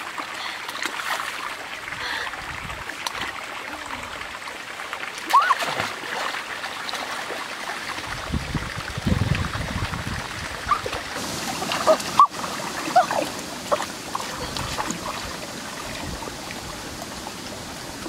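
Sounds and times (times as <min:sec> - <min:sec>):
stream running over rocks: 0:00.0 - 0:18.0
splashing in water: 0:05.1 - 0:08.0, 0:09.2 - 0:17.1.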